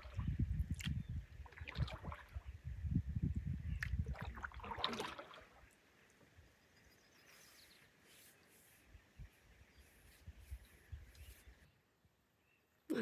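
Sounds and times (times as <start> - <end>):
paddle water gurgling and dripping: 0.0 - 2.8, 3.6 - 6.2.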